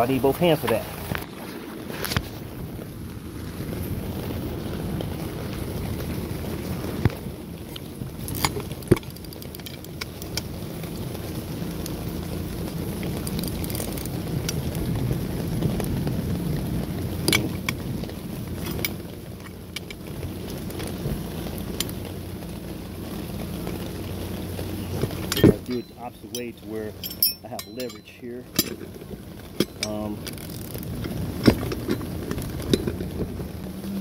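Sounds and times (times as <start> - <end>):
low background rumble: 0.0 - 34.0
wrench clinking on metal bolt: 25.3 - 28.8, 29.6 - 30.0.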